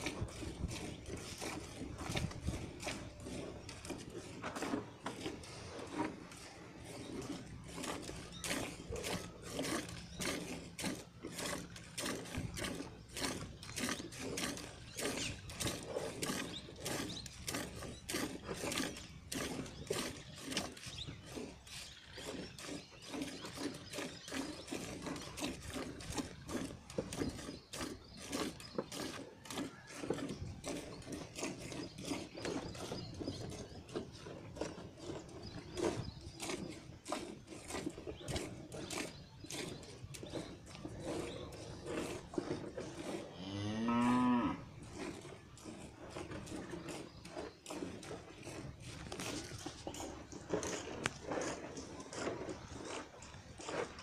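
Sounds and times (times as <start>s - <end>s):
milk squirting into pail: 0.0s - 43.2s, 44.8s - 54.0s
cow mooing: 43.3s - 44.7s.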